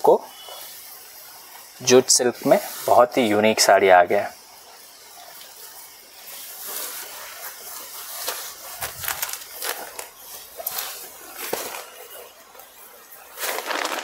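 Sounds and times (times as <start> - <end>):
fabric rustling: 6.6 - 12.2, 13.3 - 14.0.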